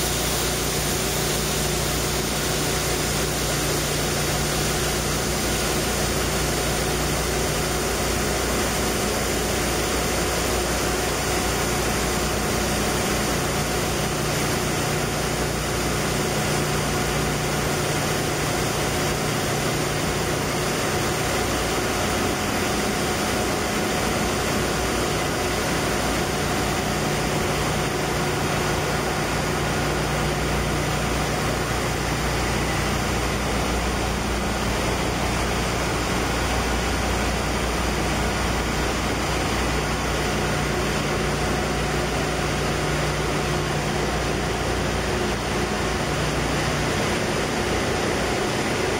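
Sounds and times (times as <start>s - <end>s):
loud hiss of compressed air: 0.0s - 9.7s
hum of running machinery: 0.0s - 48.9s.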